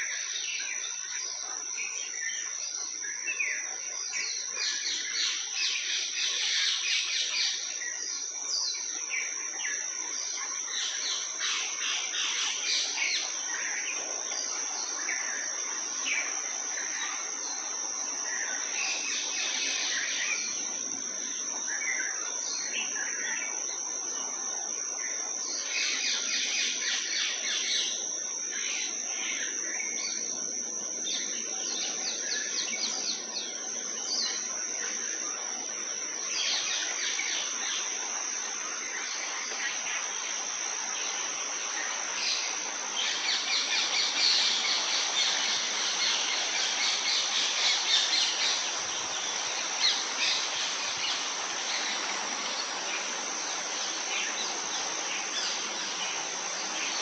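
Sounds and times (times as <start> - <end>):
birds chirping and twittering: 0.0 - 57.0.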